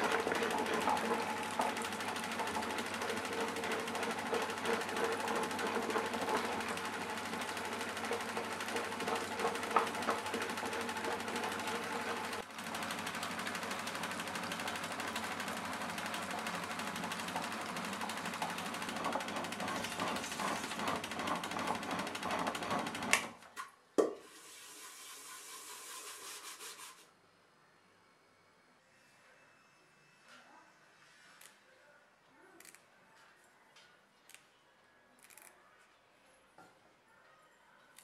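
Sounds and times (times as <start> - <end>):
wet grinder rumbling churn: 0.0 - 23.4.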